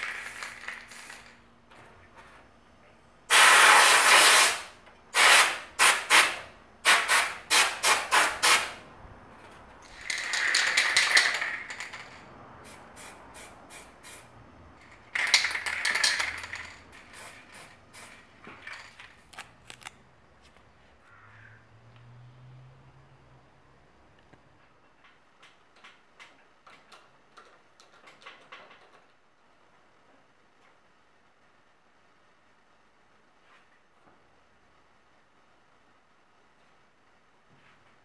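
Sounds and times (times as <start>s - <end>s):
spray paint can hissing: 0.0s - 1.4s, 3.3s - 8.8s, 10.0s - 18.9s.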